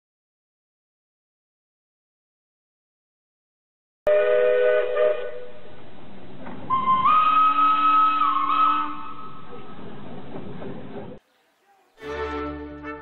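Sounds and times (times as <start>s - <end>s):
steam locomotive whistle: 4.1s - 5.7s, 6.7s - 9.7s.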